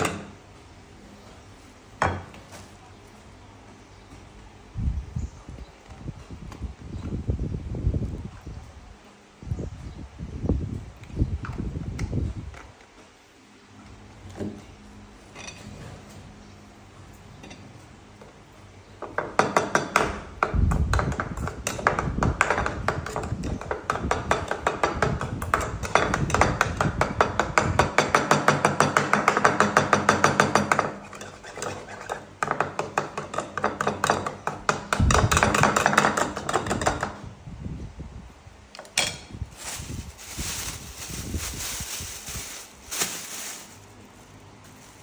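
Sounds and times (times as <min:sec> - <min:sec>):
plastic bag rustling: 0:39.5 - 0:45.0.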